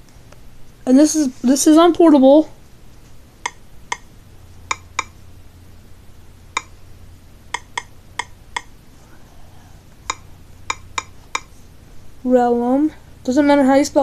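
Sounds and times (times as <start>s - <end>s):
faint low hum: 0.0s - 14.0s
on-screen keyboard clicks: 3.4s - 4.1s, 7.5s - 8.7s.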